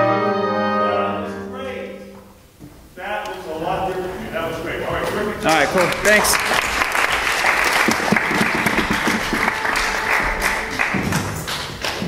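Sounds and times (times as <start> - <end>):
people applauding: 5.5 - 12.0.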